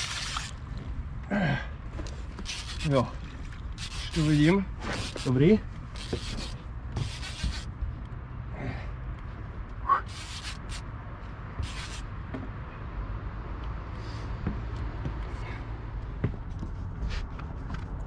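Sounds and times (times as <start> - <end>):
fishing tackle rustling and scraping: 0.0 - 1.0, 1.9 - 7.7, 10.1 - 10.8, 11.6 - 12.0.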